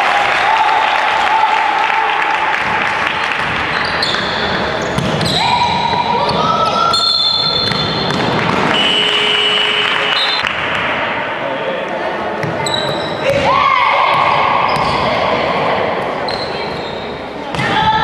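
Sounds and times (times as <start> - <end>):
basketball bouncing on court: 3.3 - 6.8, 7.4 - 9.3, 12.4 - 15.2.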